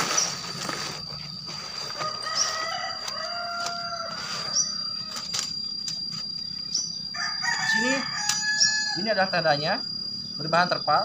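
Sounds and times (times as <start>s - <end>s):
steady high whine: 0.0s - 11.0s
rooster crowing: 1.9s - 5.3s, 7.0s - 9.4s.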